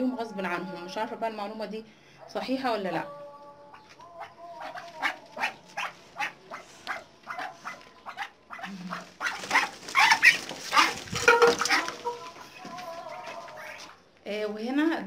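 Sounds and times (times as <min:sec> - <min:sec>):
ducks calling: 0:03.7 - 0:14.1.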